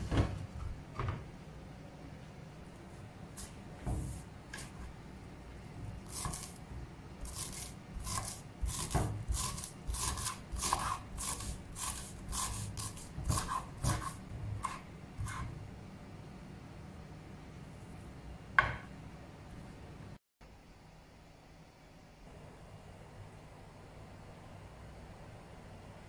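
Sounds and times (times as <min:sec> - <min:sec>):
knife chopping on wooden board: 0:06.1 - 0:06.6, 0:07.2 - 0:15.5
knock: 0:18.6 - 0:18.9.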